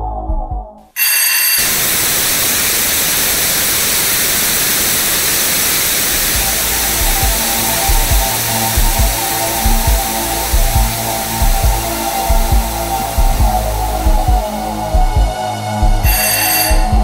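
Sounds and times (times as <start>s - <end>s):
music: 0.0s - 0.9s, 6.3s - 17.0s
tv static hiss: 1.0s - 15.0s, 16.0s - 17.0s.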